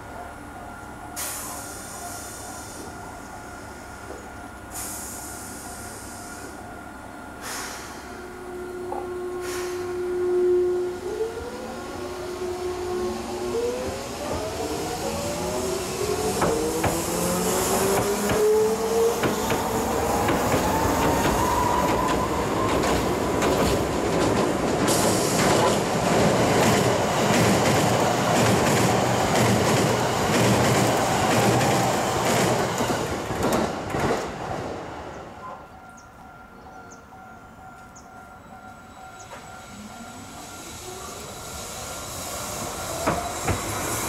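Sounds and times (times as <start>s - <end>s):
train wheels rumbling with clacks: 13.5s - 35.2s, 37.4s - 44.0s.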